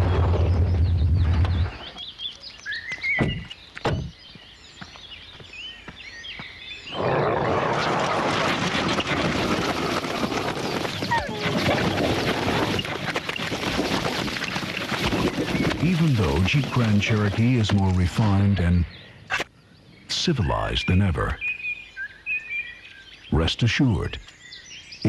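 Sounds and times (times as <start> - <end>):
birds chirping: 0.0 - 7.8, 9.9 - 25.0
mud splattering rushing noise: 7.4 - 18.1.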